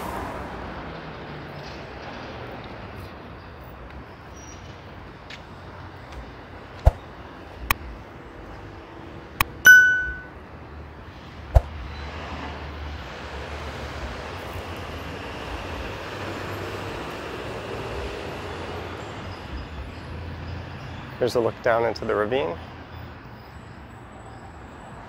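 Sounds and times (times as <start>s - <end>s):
city street traffic: 0.0s - 25.0s
bright metallic ding: 9.7s - 10.4s.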